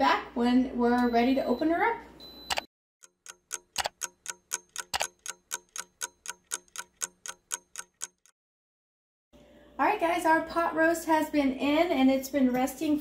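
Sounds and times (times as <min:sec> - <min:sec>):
clock ticking: 0:02.5 - 0:08.4.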